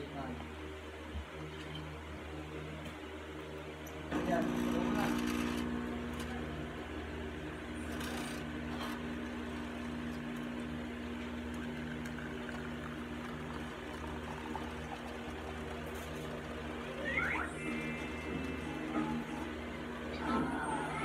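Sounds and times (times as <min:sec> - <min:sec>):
espresso machine pump humming: 0:04.1 - 0:21.0
espresso pouring into cup: 0:04.2 - 0:06.4, 0:07.8 - 0:21.0.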